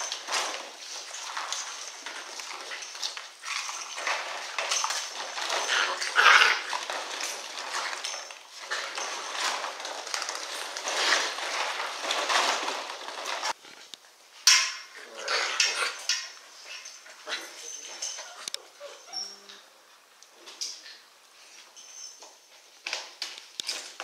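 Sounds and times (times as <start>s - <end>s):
plastic balls clattering: 0.0s - 13.6s
puppies play-fighting: 0.0s - 14.0s, 14.8s - 21.6s.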